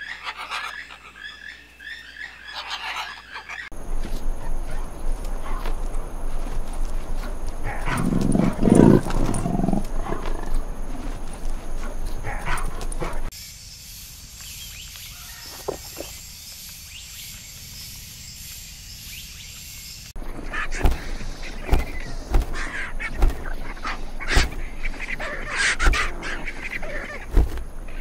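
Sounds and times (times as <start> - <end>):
rough rustling: 3.7 - 13.3, 20.2 - 28.0
leopard growling: 4.1 - 13.3, 20.2 - 28.0
steady high hiss: 12.8 - 25.5.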